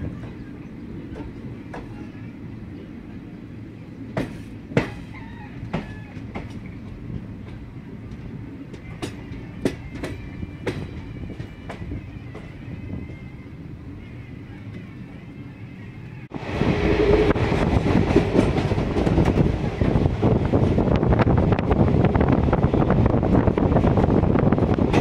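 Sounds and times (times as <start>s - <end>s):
train rumbling along track: 0.0s - 25.0s
train wheels clanking: 4.2s - 12.6s.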